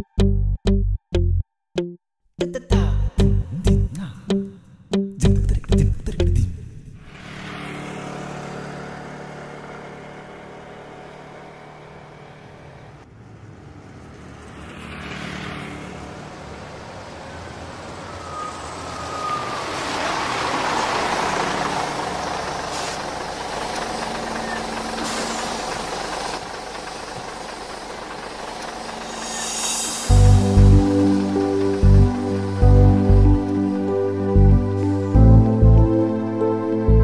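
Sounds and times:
bus engine approaching: 6.2s - 37.0s
street traffic: 6.2s - 37.0s
motorcycle engine running: 7.1s - 13.0s.

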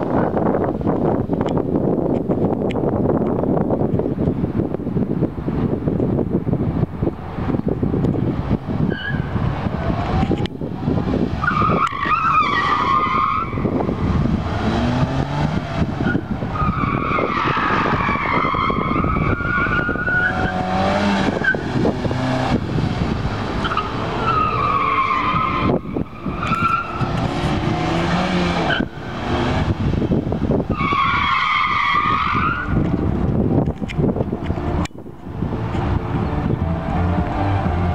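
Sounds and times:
tyres squealing: 23.6s - 27.3s.

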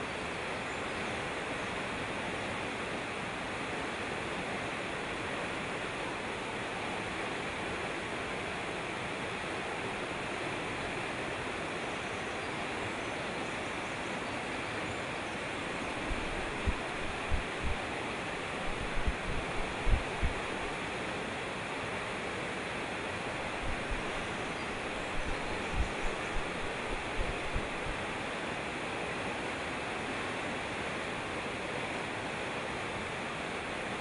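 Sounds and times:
stream rushing over rocks: 0.1s - 11.8s, 12.4s - 34.0s
brief low thumps: 18.7s - 20.5s.

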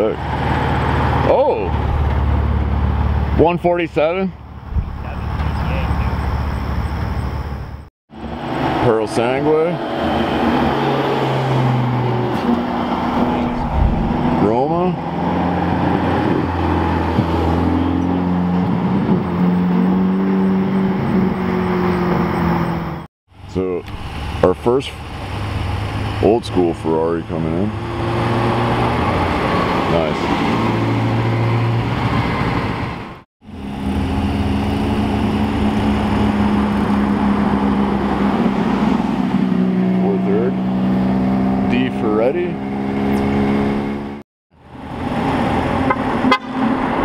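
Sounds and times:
car engine driving past: 8.2s - 18.6s.

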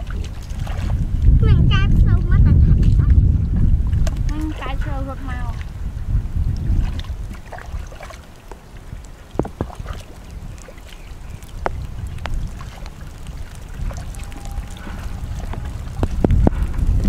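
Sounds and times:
wind rumbling on microphone: 0.0s - 17.0s
hands splashing in water: 6.8s - 8.6s.

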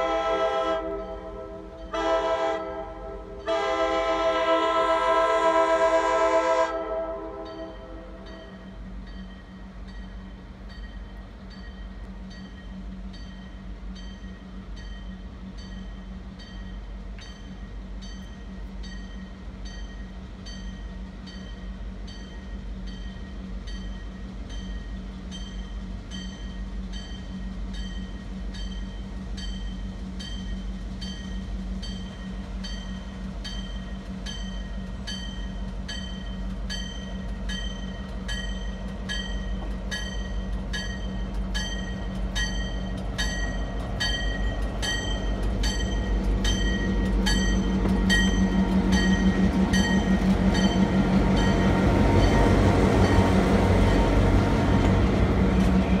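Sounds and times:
locomotive engine drone: 0.0s - 56.0s
locomotive bell ringing: 0.8s - 3.7s, 7.3s - 56.0s.

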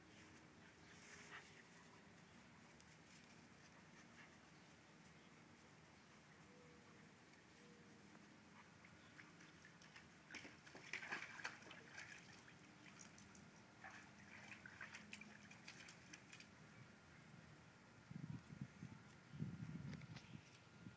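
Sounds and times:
dog splashing in water: 9.2s - 16.5s.

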